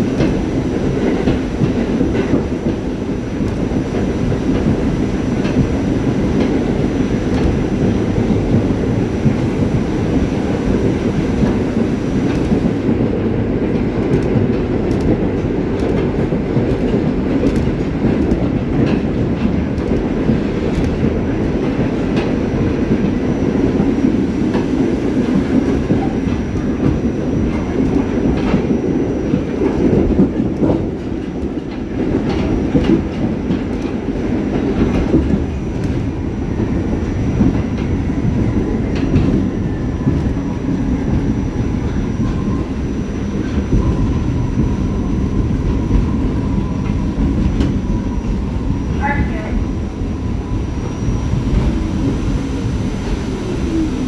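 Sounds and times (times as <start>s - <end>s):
train wheels rumbling on rail: 0.0s - 54.0s
wheels clicking over rail joints: 12.3s - 22.4s, 29.3s - 36.8s.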